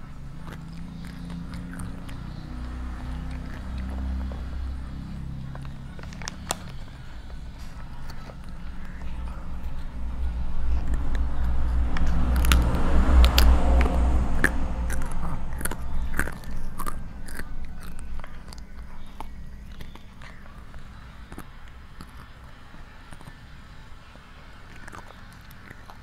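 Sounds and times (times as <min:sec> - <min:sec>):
low rumble: 0:00.0 - 0:19.7
child chewing crunchy snack: 0:00.0 - 0:26.0.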